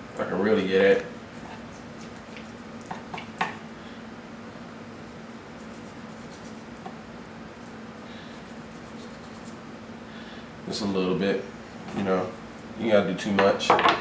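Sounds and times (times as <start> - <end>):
steady low hum: 0.0 - 14.0
knife slicing meat: 1.3 - 3.3.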